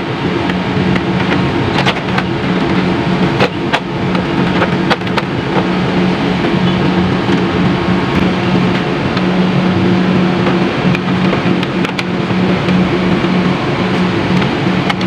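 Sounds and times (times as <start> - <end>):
steady machine hum: 0.0 - 15.0.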